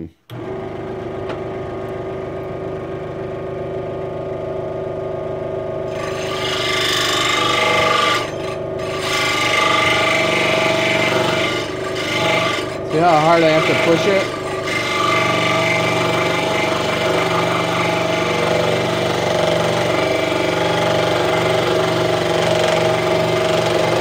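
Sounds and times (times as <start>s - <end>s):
saw blade rasping through wood: 5.9s - 24.0s
scroll saw motor humming: 5.9s - 24.0s.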